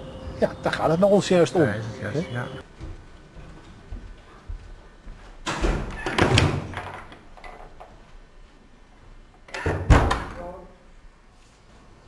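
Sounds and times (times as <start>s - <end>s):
heavy door thud: 5.4s - 7.0s, 9.6s - 10.4s.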